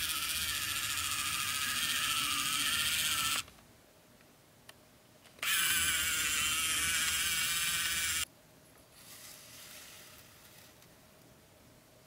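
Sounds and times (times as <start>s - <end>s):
model motor whirring: 0.0s - 3.5s, 5.4s - 8.2s.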